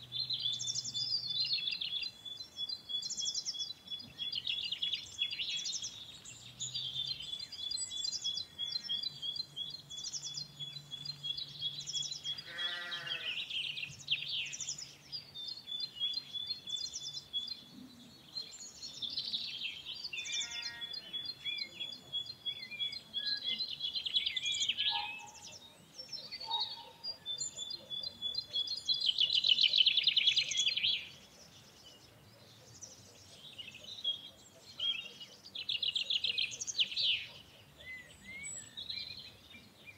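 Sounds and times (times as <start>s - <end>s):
small birds chirping: 0.0s - 39.9s
farm animal bleating: 12.3s - 13.4s, 20.3s - 21.0s.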